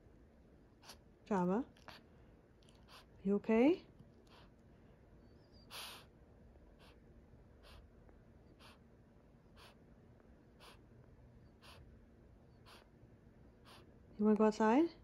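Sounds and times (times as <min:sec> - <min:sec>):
dog breathing heavily: 0:01.8 - 0:03.2, 0:04.2 - 0:04.7, 0:05.3 - 0:09.9, 0:10.5 - 0:14.0.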